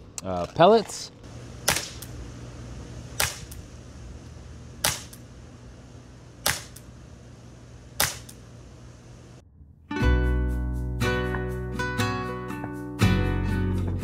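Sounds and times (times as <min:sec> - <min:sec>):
pellet pistol shots: 0:01.6 - 0:02.2, 0:03.1 - 0:03.7, 0:04.8 - 0:05.3, 0:06.4 - 0:06.9, 0:08.0 - 0:08.4.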